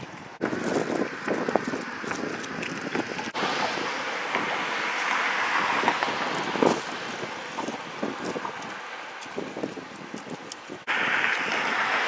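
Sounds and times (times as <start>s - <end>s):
car passing: 3.2s - 9.8s, 10.8s - 12.0s.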